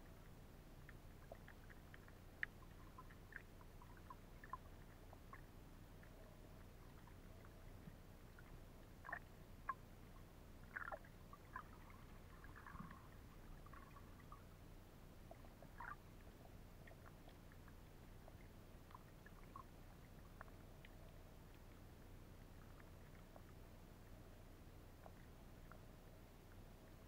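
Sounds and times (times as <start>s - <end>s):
low underwater hum: 0.0s - 27.0s
bubbly gurgles: 0.2s - 9.8s, 10.6s - 14.6s, 15.2s - 21.0s.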